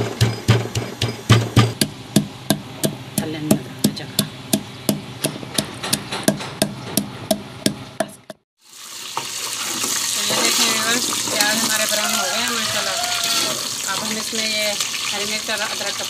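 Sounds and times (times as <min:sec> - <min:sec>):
pestle pounding in wooden mortar: 0:00.0 - 0:08.4
onions frying in oil: 0:08.6 - 0:16.0.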